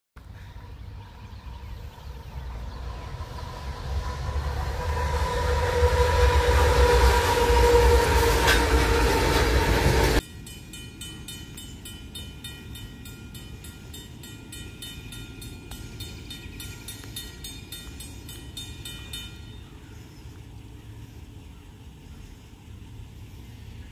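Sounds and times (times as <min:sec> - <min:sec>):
distant train: 0:00.2 - 0:23.9
locomotive engine rumble: 0:00.2 - 0:23.9
locomotive air horn blast: 0:03.4 - 0:10.2
fast high ringing: 0:10.1 - 0:20.1.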